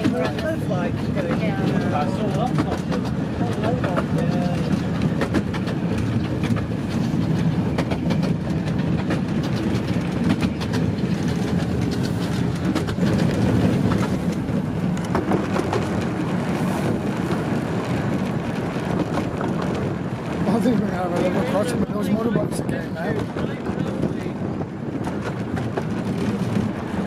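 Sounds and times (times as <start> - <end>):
train wheels rumbling on rail: 0.0 - 27.0
sharp rail clicks: 1.2 - 20.9.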